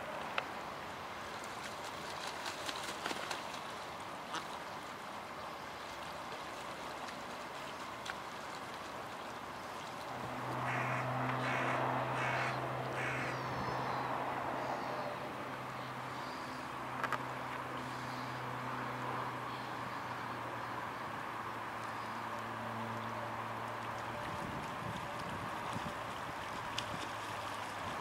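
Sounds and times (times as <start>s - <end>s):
low engine hum: 0.0s - 28.0s
geese honking: 10.7s - 13.4s.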